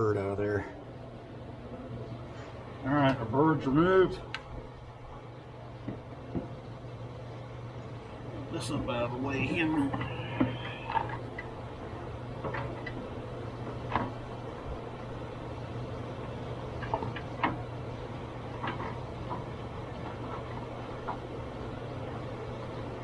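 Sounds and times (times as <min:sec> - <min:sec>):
steady low hum: 0:00.0 - 0:23.0.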